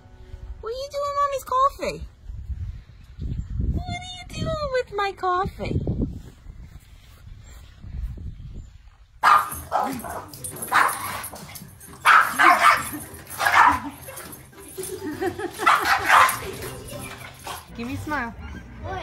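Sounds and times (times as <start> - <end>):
dog barking: 9.2 - 14.2, 15.6 - 16.7.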